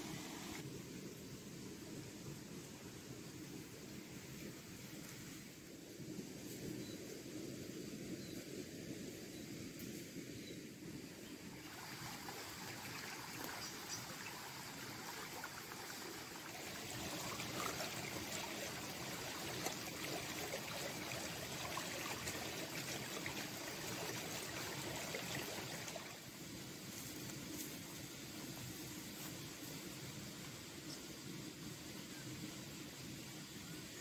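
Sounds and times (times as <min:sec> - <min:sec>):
water trickling: 0:11.6 - 0:26.3.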